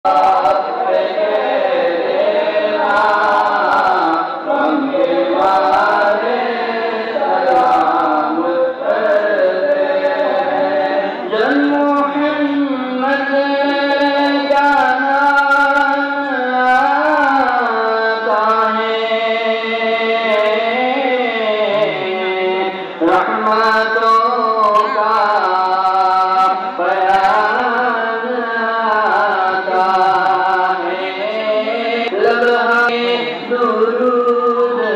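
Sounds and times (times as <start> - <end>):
voices chanting slow melody: 0.1 - 11.8.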